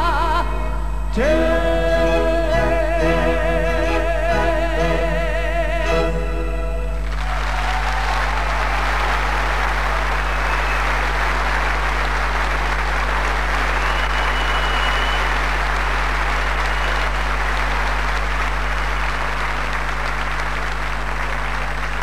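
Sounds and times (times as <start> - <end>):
low hum: 0.0 - 8.6
audience applauding: 7.0 - 22.0.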